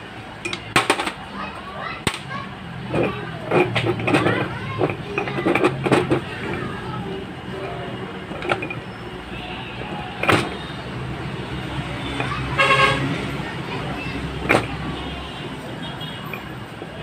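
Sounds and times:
vehicle engine running: 0:02.2 - 0:17.0
horn toot: 0:12.6 - 0:13.2.

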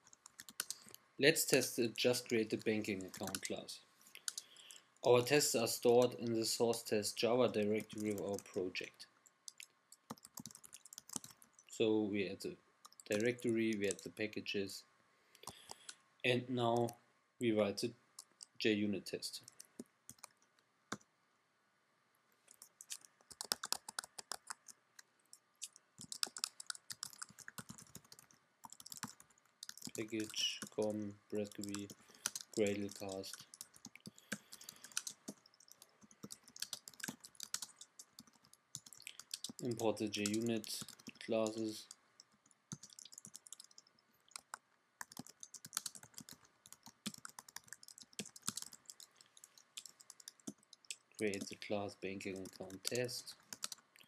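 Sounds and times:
keyboard keys clicking: 0:02.3 - 0:03.5, 0:09.5 - 0:11.5, 0:22.6 - 0:24.8, 0:25.6 - 0:51.6, 0:52.2 - 0:53.8.

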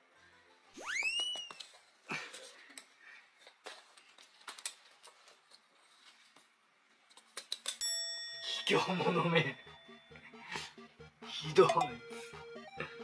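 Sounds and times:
rising whistle sound effect: 0:00.8 - 0:01.6.

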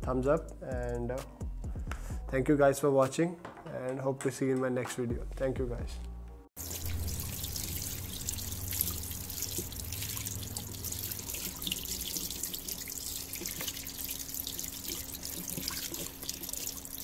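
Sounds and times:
tap water splashing into basin: 0:06.6 - 0:17.0
water spatters and drips: 0:06.6 - 0:17.0.

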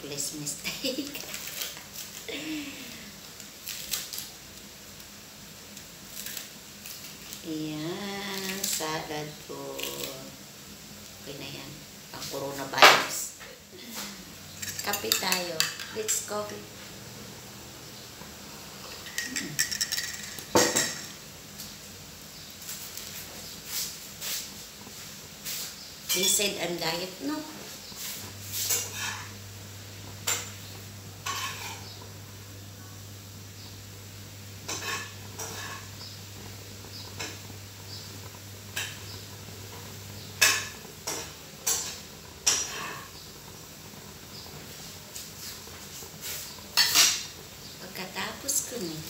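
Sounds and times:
utensils clinking against pots: 0:14.6 - 0:16.6, 0:18.8 - 0:21.2, 0:28.6 - 0:29.4, 0:31.2 - 0:32.0, 0:34.6 - 0:36.0, 0:40.4 - 0:43.1, 0:46.7 - 0:47.4.

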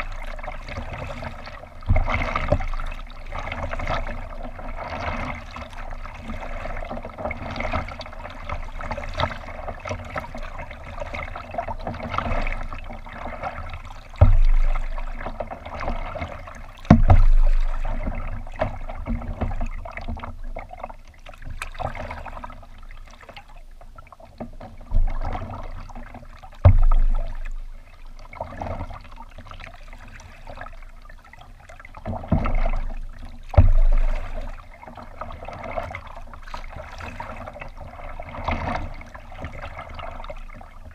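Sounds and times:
water lapping against kayak hull: 0:00.0 - 0:40.9
dull low thumps: 0:14.2 - 0:15.2, 0:16.9 - 0:18.6, 0:26.6 - 0:27.8, 0:32.4 - 0:34.5.

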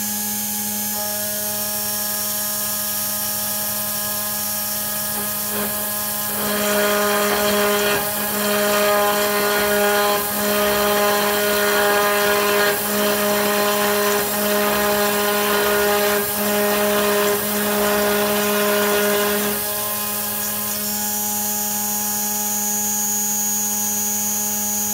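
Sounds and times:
end mill cutting aluminium: 0:00.6 - 0:22.8
spindle whining: 0:03.2 - 0:22.3.

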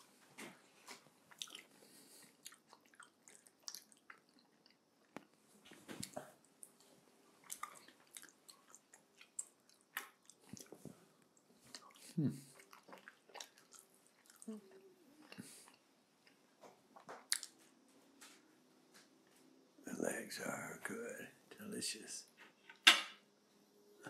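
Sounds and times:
close chewing with mouth clicks: 0:01.3 - 0:16.4, 0:17.0 - 0:17.6.

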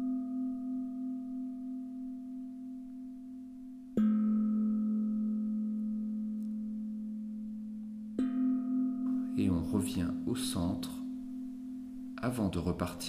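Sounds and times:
lower singing bowl struck: 0:00.0 - 0:09.4
singing bowl ringing: 0:00.0 - 0:09.8, 0:10.9 - 0:12.3.

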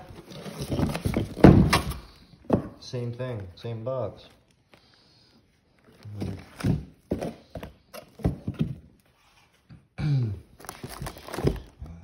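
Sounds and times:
cardboard boxes knocking and thudding: 0:00.0 - 0:02.8, 0:06.1 - 0:09.1, 0:10.6 - 0:11.8.

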